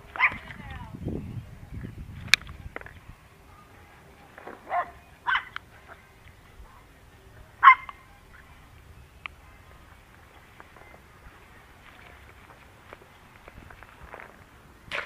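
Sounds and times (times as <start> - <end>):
dog barking: 0.2 - 0.4, 4.6 - 5.6, 7.6 - 8.2.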